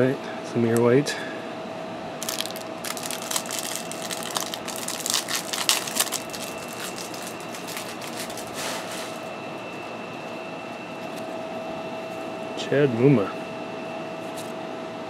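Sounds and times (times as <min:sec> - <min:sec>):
cards rustling: 0:02.2 - 0:08.6.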